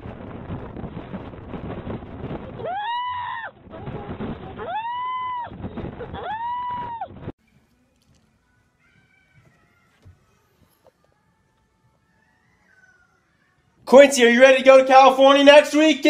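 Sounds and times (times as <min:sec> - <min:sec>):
wind rumbling on microphone: 0:00.0 - 0:07.4.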